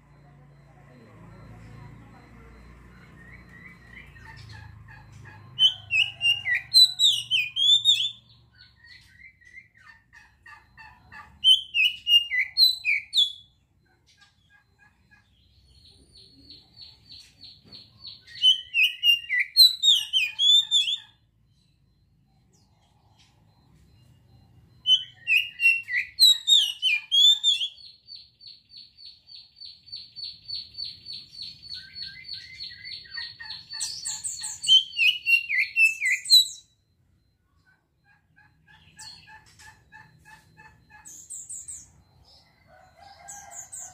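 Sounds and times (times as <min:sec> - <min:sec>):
bird trills: 0:02.9 - 0:21.9, 0:22.5 - 0:43.9.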